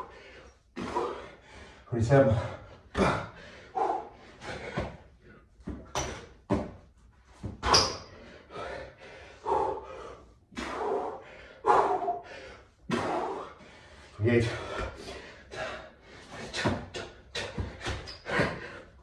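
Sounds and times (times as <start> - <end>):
man breathing hard: 0.0 - 6.4, 8.1 - 19.0
hands and feet thudding on tiled floor: 4.4 - 8.2, 16.3 - 18.7.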